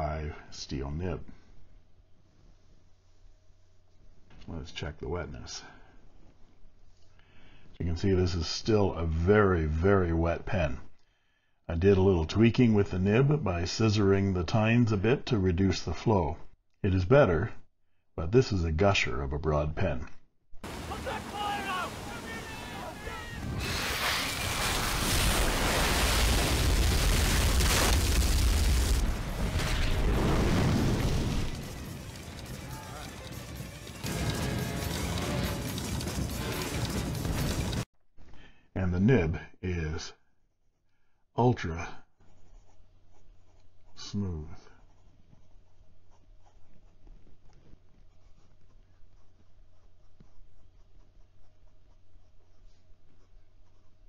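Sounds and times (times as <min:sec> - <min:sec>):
fountain pen writing on paper: 0:44.8 - 0:54.0.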